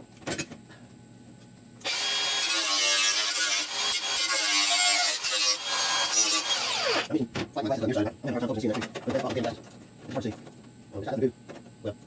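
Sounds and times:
angle grinder grinding metal: 1.8s - 7.1s.

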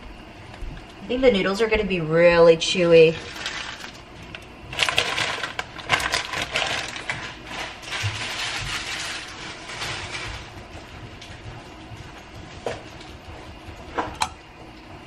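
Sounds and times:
plastic packaging crinkling: 3.1s - 10.8s.

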